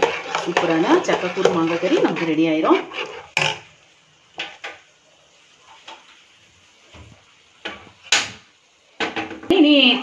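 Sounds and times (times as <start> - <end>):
ladle scraping in pot: 0.0 - 3.7
pot clanking on burner grate: 0.0 - 3.7.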